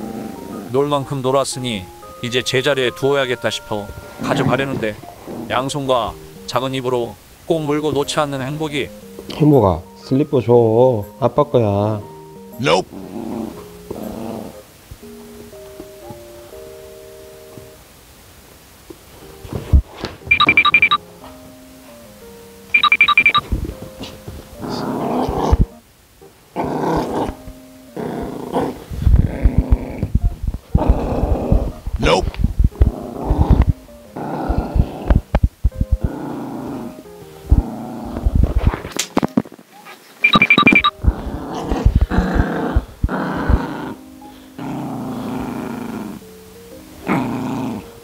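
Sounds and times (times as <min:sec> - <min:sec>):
light background music: 0:00.0 - 0:48.0
small dog growling: 0:12.8 - 0:14.6, 0:24.0 - 0:25.8, 0:26.5 - 0:38.9, 0:41.0 - 0:46.3, 0:47.0 - 0:48.0.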